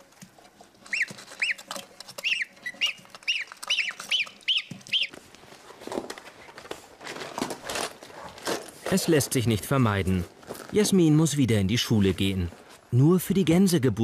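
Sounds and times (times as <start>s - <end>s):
goslings peeping: 0.8s - 5.2s.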